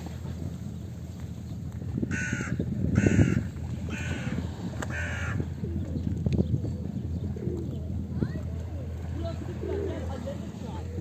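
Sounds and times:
low outdoor rumble: 0.0 - 11.0
crow cawing: 2.1 - 5.4.

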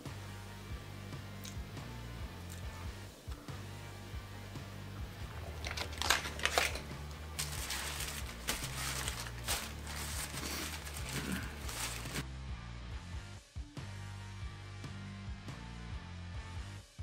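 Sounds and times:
quiet background music: 0.0 - 17.0
paper wrappers crinkling: 5.3 - 12.2.

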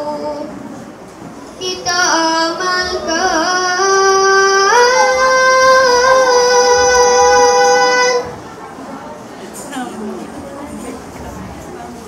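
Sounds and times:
boy singing unaccompanied: 0.0 - 0.7, 1.6 - 8.4.

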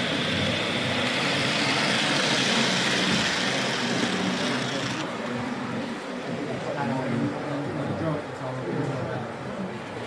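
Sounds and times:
model train running: 0.0 - 6.1.

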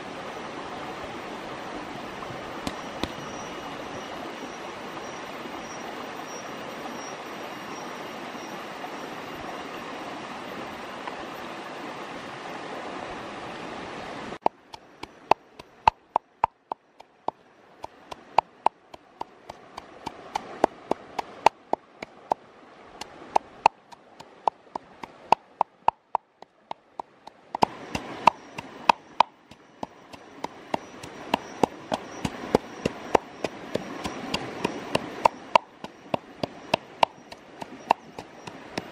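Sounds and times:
stream water flowing: 0.0 - 38.9
pestle pounding in wooden mortar: 14.5 - 21.8, 23.4 - 38.9.

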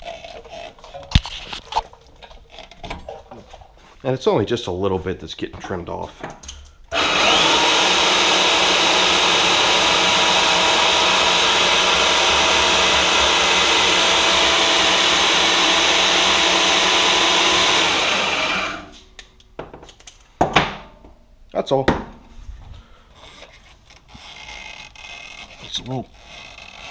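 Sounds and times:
bench band saw running: 6.9 - 19.0.

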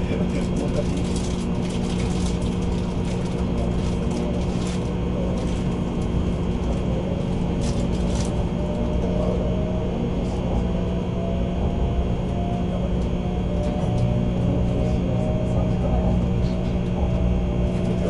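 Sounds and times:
train cabin hum: 0.0 - 18.0
faint rising whine: 3.6 - 18.0.

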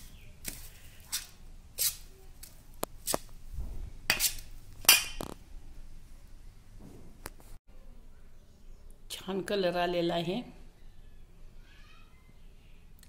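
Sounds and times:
spoon scraping steel bowl: 4.1 - 5.2.

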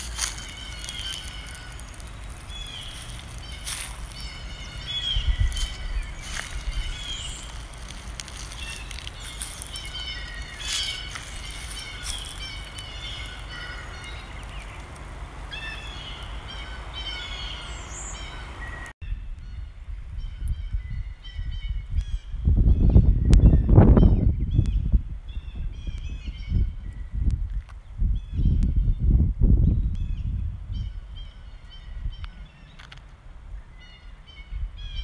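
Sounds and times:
songbirds chirping: 0.0 - 19.0.

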